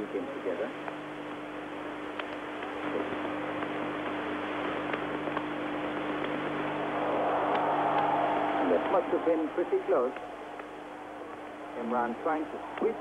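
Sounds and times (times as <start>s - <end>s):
low broadcast hum: 0.0s - 13.0s
stadium crowd murmur: 6.7s - 13.0s.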